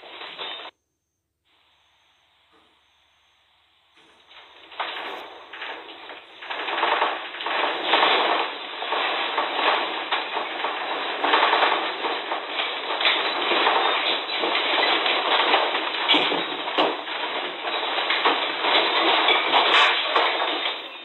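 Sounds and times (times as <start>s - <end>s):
objects rattling and clattering: 0.0s - 0.7s, 4.0s - 21.0s.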